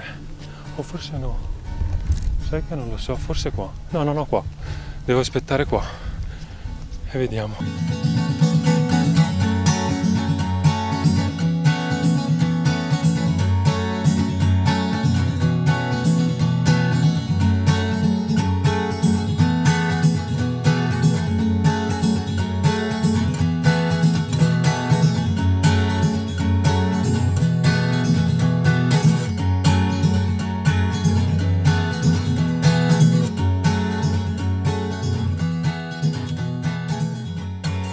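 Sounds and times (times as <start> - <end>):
strummed acoustic guitar music: 0.0 - 37.9.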